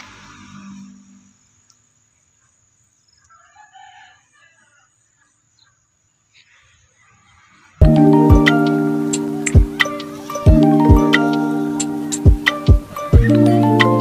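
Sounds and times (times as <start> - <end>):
rooster crowing faintly: 3.2 - 5.8.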